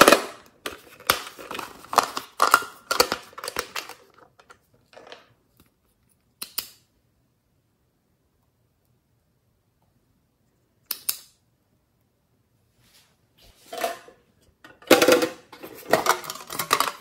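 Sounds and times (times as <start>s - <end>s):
toy makeup case clattering: 0.0s - 5.3s, 14.7s - 17.0s.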